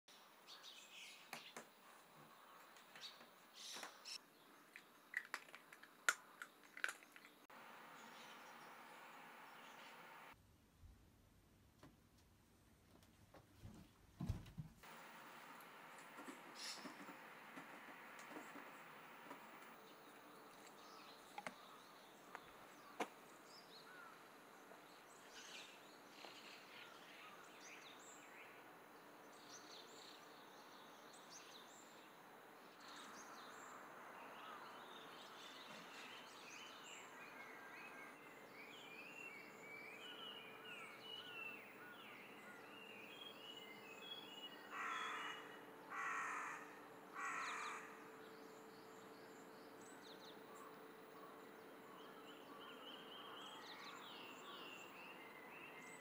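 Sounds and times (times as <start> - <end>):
small birds chirping: 0.1 - 10.4, 14.8 - 56.0
crow cawing: 44.7 - 48.0.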